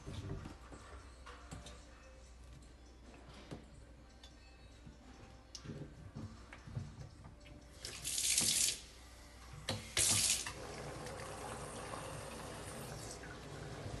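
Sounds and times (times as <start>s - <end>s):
water hissing spurts: 9.8s - 10.7s.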